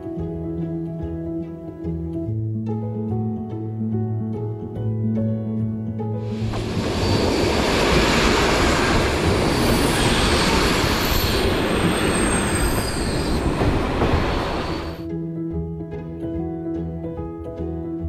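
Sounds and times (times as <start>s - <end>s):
faint high squeal: 6.3s - 15.0s
train wheels rushing on rails: 6.3s - 15.0s.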